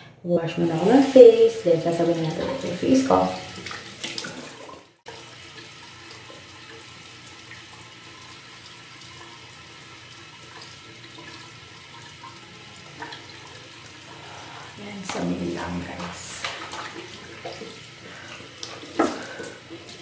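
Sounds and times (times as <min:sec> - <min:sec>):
running tap hissing: 0:00.6 - 0:20.0
water splashing onto face: 0:03.4 - 0:04.8, 0:15.1 - 0:20.0.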